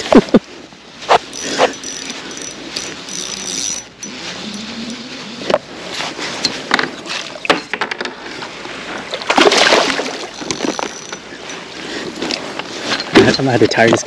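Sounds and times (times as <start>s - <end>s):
fishing gear clicks and knocks: 1.1s - 5.7s, 10.2s - 14.0s
fish splashing in water: 9.1s - 11.4s.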